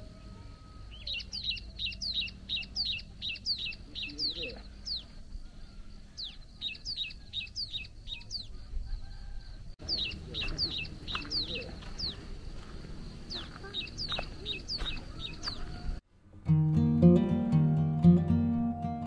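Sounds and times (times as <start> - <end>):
birds chirping: 0.0 - 16.0.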